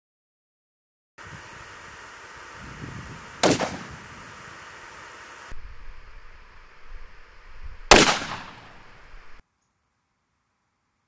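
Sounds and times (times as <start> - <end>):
grenade launcher firing: 3.4 - 4.2, 7.9 - 9.0.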